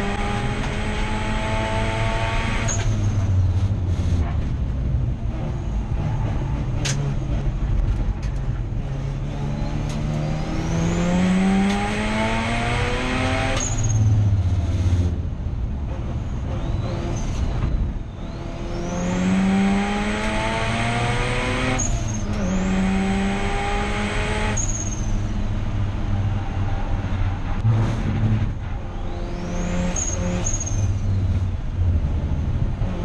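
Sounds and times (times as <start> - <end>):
rotary race car engine revving: 0.0 - 3.0, 8.7 - 15.2, 18.2 - 25.8.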